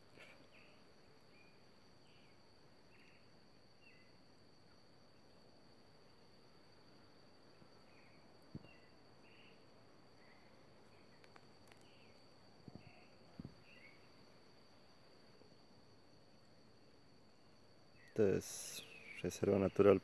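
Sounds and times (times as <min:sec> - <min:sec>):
high insect drone: 0:00.0 - 0:20.0
faint bird chirps: 0:00.1 - 0:04.2, 0:07.5 - 0:14.4, 0:17.3 - 0:20.0.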